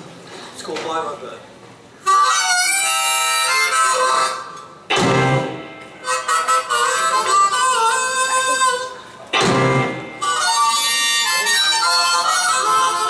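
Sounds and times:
blues harmonica: 2.0s - 13.0s.

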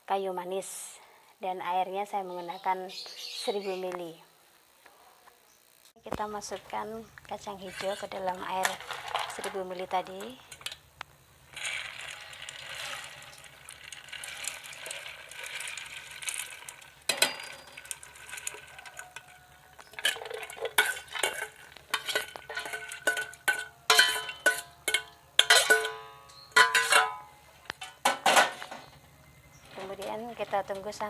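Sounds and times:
metal ladle scraping steel bowl: 7.4s - 10.8s, 11.5s - 27.2s
beans pouring into water: 7.7s - 10.3s, 11.5s - 22.9s.

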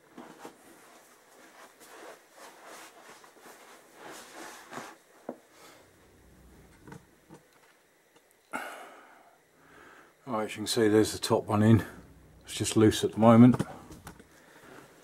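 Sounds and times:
rustling and shuffling: 0.0s - 7.8s, 10.7s - 15.0s.

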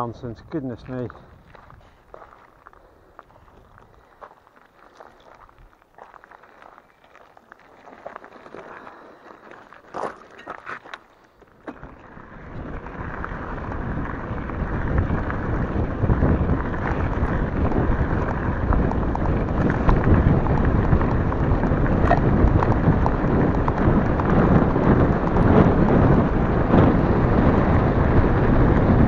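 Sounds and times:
wind rushing over microphone: 0.0s - 4.3s, 11.6s - 29.0s
bike tyres rumbling on gravel: 0.0s - 29.0s.

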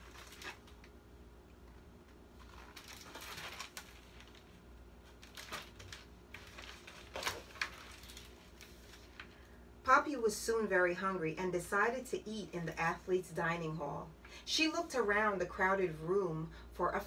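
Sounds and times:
book pages turning: 0.0s - 1.0s, 1.7s - 9.5s.

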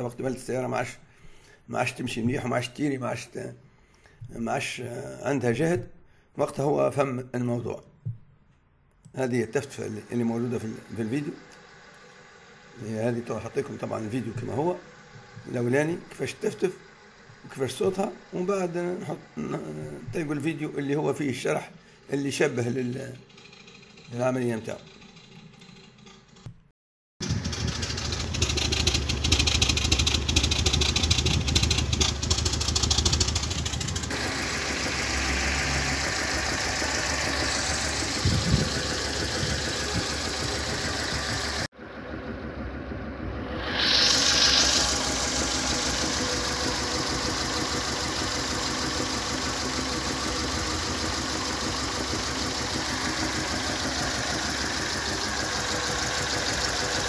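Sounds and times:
car engine idling roughly and misfiring: 23.2s - 24.2s, 24.9s - 26.5s, 27.2s - 57.0s.

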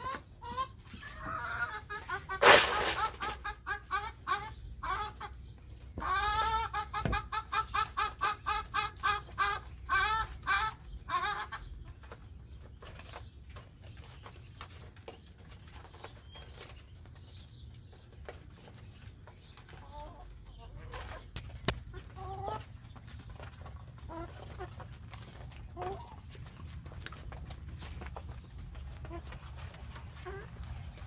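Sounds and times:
chickens clucking: 0.0s - 31.0s
beaks pecking on plastic tarp: 2.0s - 3.7s.

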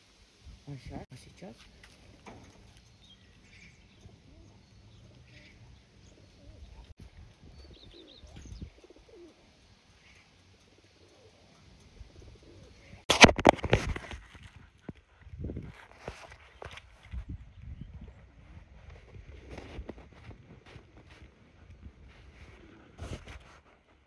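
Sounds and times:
pigeons cooing and chirping: 2.2s - 13.0s.

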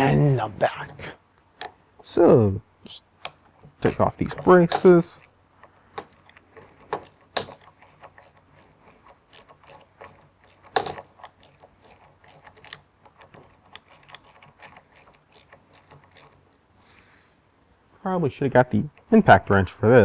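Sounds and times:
screwdriver clicking: 3.2s - 16.5s.

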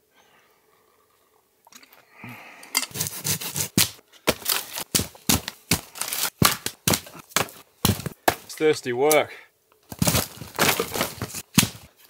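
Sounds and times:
footsteps crunching on twigs: 3.8s - 8.6s, 9.9s - 11.9s.

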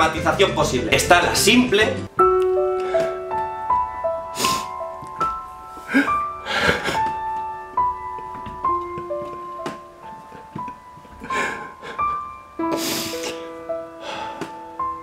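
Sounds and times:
sad piano melody: 2.0s - 15.0s
sniffles: 12.7s - 13.5s.

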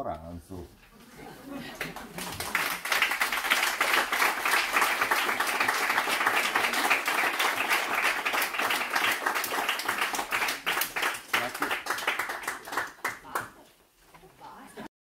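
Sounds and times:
crowd applauding: 1.6s - 13.6s.

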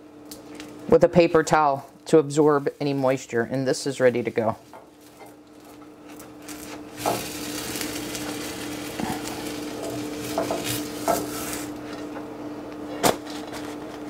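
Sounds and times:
steady low hum: 0.0s - 14.0s
crepe sizzling in frying pan: 4.3s - 12.2s
spatula scraping pan: 4.6s - 11.8s.

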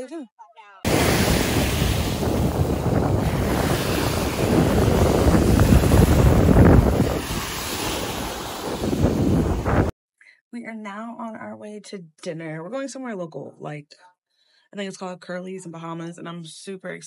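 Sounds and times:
ocean waves washing on beach: 0.9s - 9.9s
wind buffeting microphone: 0.9s - 9.9s.

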